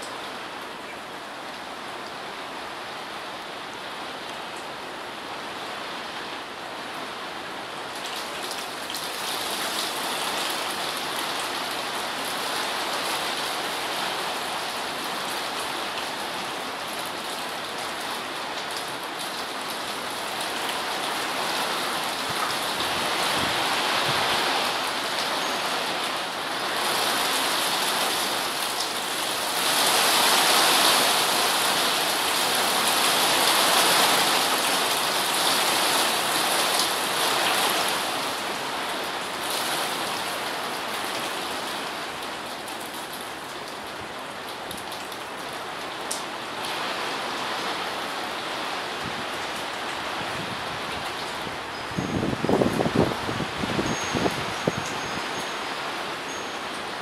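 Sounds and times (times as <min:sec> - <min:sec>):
rain and graupel pelting: 0:05.4 - 0:57.0
gusting storm wind: 0:20.2 - 0:40.8, 0:46.5 - 0:56.2.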